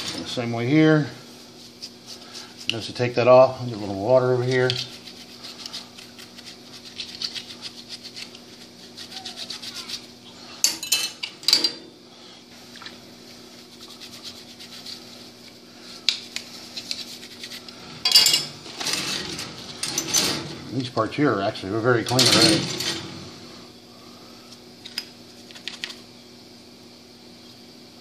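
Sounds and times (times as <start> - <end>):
brush scrubbing metal: 1.4 - 10.2, 13.3 - 15.6, 16.3 - 18.8
metal parts clinking on wire baskets: 18.0 - 20.9, 22.0 - 23.2.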